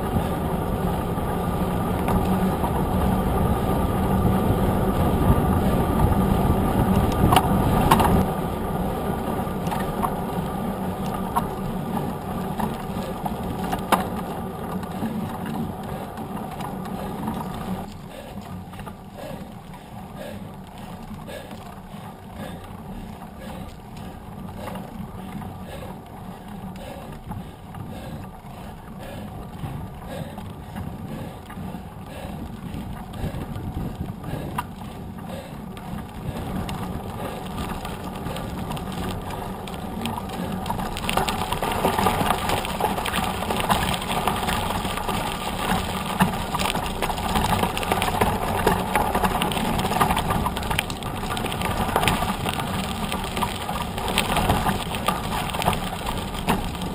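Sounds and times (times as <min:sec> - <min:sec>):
bike tyre hum and frame rattle: 0:00.0 - 0:56.9
bike tyres on loose gravel: 0:00.0 - 0:56.9.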